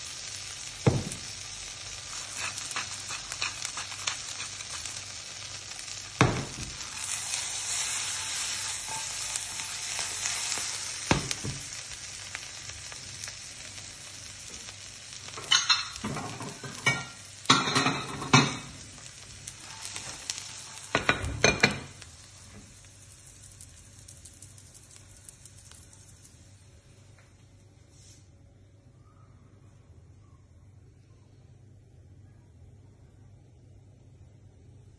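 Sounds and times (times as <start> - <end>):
butter sizzling in a frying pan: 0.0 - 27.2.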